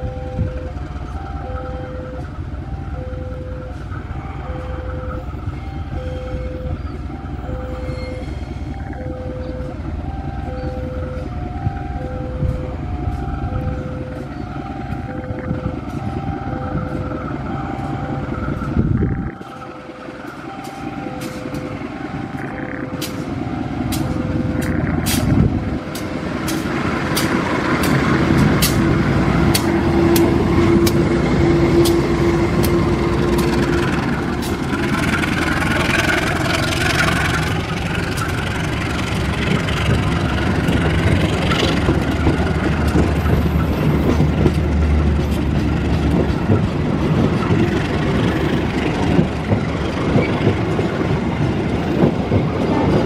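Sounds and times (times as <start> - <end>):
level crossing warning chime: 0.0 - 24.6
diesel locomotive rumble: 0.0 - 53.0
train wheels clicking on rail joints: 3.6 - 53.0.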